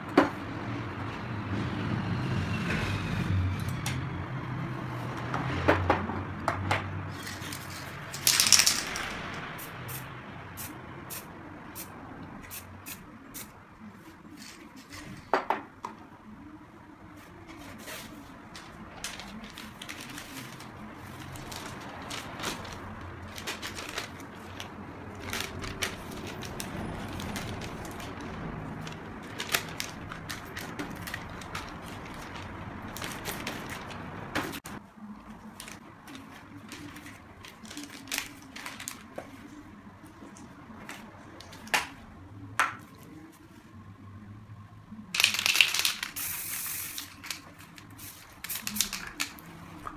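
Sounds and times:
paper crinkling and crackling: 17.2 - 42.0, 45.2 - 49.9
spray can spraying: 45.2 - 49.4.

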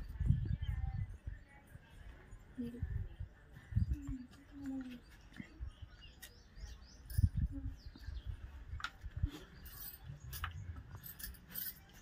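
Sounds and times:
faint birds chirping: 0.0 - 12.0
bangles clinking: 6.3 - 7.5, 8.8 - 12.0.

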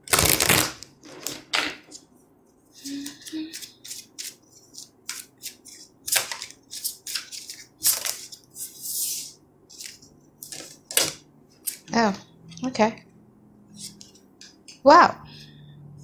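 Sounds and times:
cards being shuffled: 2.8 - 12.0.

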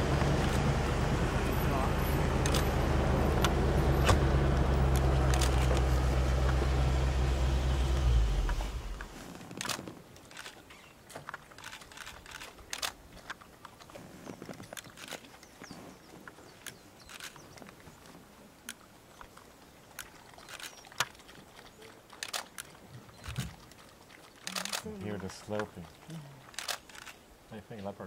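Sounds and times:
vehicle engine idling: 0.0 - 9.3.

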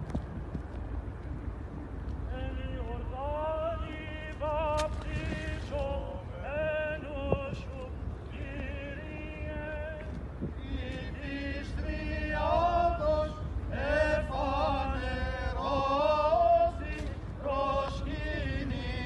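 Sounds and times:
group chanting a hymn: 10.6 - 19.0.

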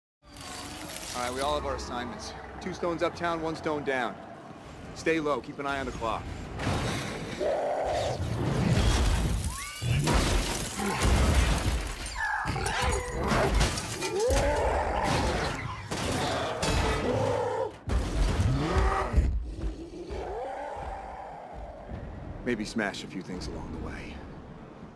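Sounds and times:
creature roars and grunts: 7.1 - 8.4, 12.4 - 17.8, 18.4 - 22.2
crashing and shattering: 8.6 - 16.8
debris clattering: 8.8 - 14.5.

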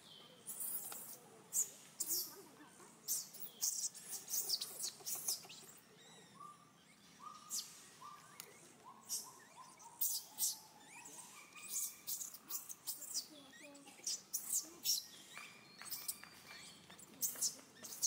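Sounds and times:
baby macaque screaming: 9.0 - 15.0.

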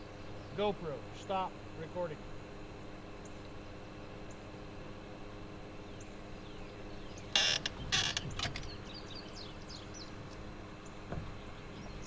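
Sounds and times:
folding chair creaking and rustling: 7.3 - 8.8
chair clicks: 7.4 - 8.7.

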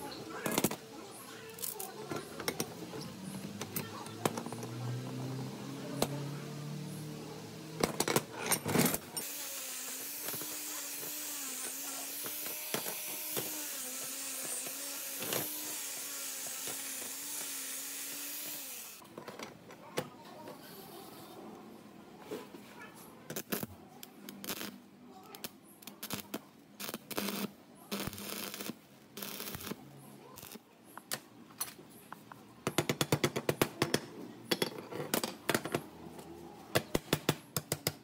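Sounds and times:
angle grinder wire brush on metal: 9.2 - 19.0.

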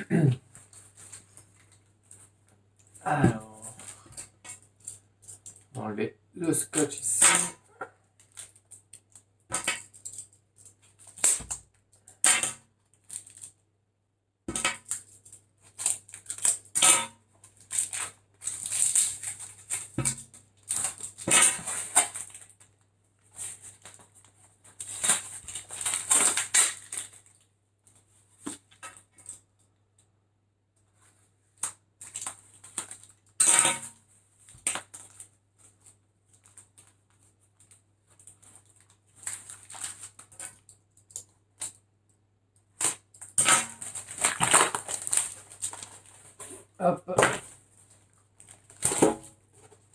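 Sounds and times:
cardboard crackling and rustling: 17.4 - 29.4, 34.2 - 40.7, 43.8 - 49.9
packing tape peeling: 24.8 - 27.4, 42.8 - 46.2.

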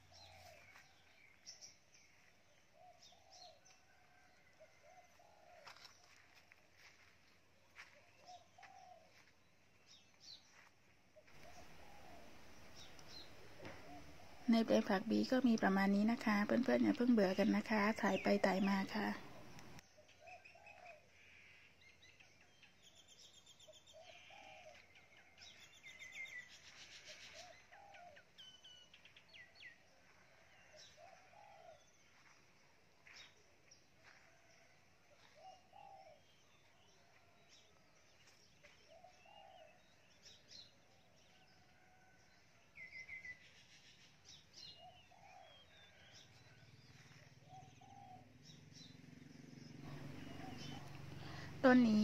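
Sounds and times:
small birds chirping and trilling: 0.0 - 52.0
dove cooing: 11.3 - 14.5, 49.8 - 51.6.

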